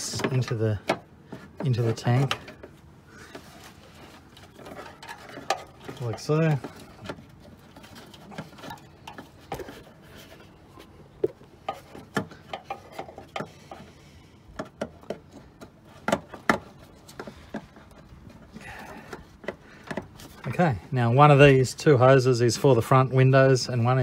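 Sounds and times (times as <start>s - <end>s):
plastic parts clicking and knocking: 0.0s - 3.5s, 11.2s - 20.6s.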